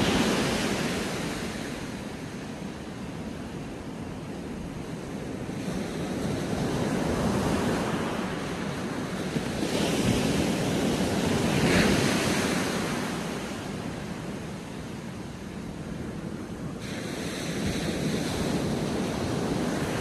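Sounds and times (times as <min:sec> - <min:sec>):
surf breaking on beach: 0:00.0 - 0:02.5.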